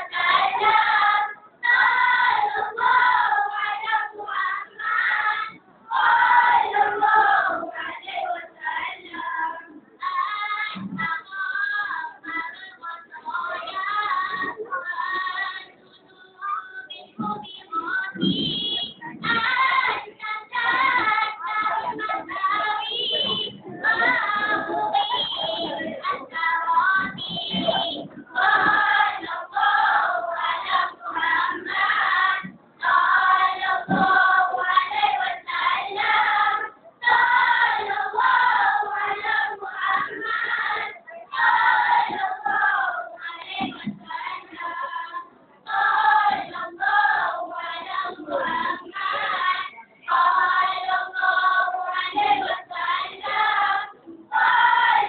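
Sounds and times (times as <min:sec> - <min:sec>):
boys choir chanting: 0:18.2 - 0:55.0.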